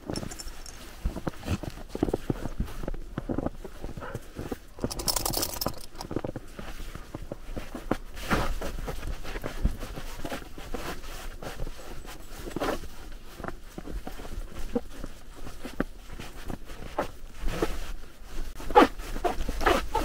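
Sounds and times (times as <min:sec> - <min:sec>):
footsteps in snow: 0:00.0 - 0:04.6.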